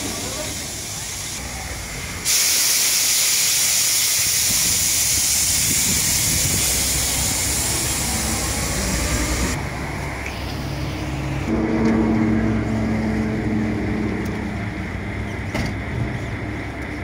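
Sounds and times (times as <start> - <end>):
high-pressure water jet hissing: 0.0 - 11.6.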